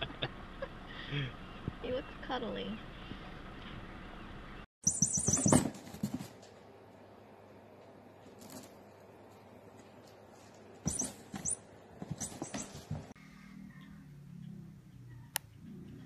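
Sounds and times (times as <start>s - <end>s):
toy mouse squeaking: 4.8s - 5.7s, 10.9s - 12.8s.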